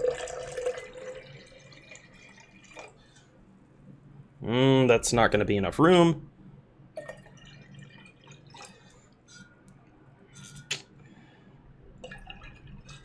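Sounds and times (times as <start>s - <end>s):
juice trickling and dripping: 0.0s - 3.3s, 7.0s - 9.1s, 12.0s - 13.0s.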